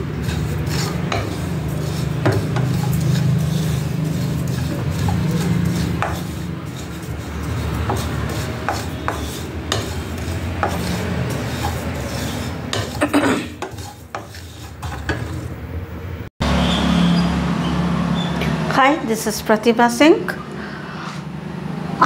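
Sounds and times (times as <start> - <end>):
spatula scraping seeds in pan: 0.0 - 15.6.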